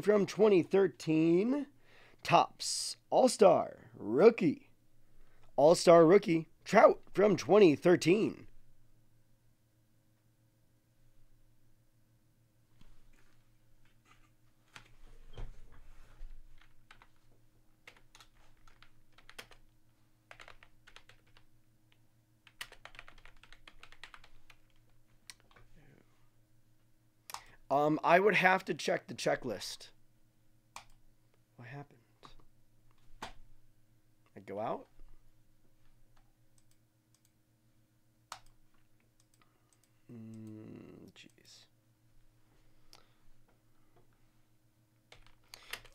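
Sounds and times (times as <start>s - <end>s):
computer keyboard typing: 16.6s - 17.2s, 17.8s - 19.7s, 20.3s - 21.5s, 22.4s - 25.6s, 38.3s - 40.6s, 45.1s - 45.9s
man humming: 40.1s - 41.5s.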